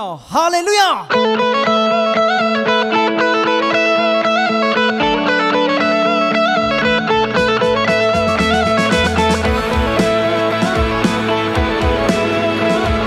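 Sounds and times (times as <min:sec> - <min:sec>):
electric guitar lead line: 0:01.0 - 0:13.0
low bass notes: 0:04.9 - 0:13.0.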